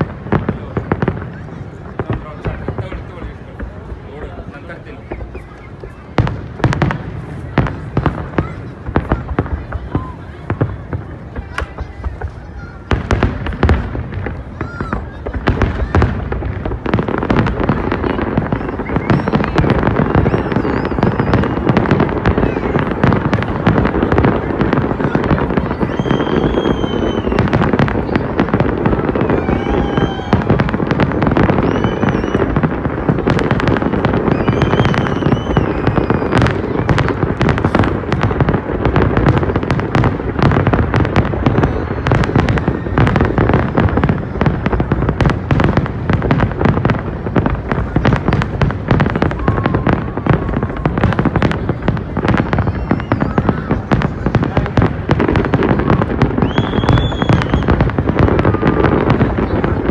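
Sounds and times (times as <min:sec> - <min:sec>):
fireworks bangs and crackles: 0:00.0 - 0:59.9
high-pitched firework whistle: 0:18.0 - 0:23.0, 0:25.0 - 0:37.8, 0:41.1 - 0:44.2, 0:49.0 - 0:51.4, 0:52.2 - 0:54.6, 0:55.5 - 0:59.8.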